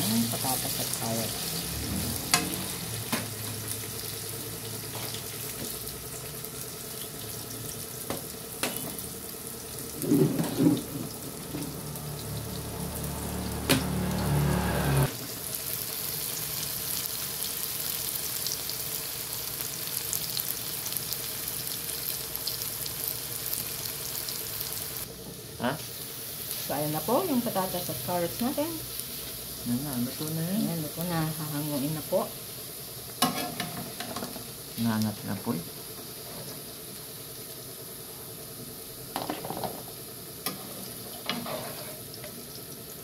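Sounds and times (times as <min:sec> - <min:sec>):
vegetables sizzling in oil: 0:00.0 - 0:43.0
low hum: 0:09.9 - 0:15.1.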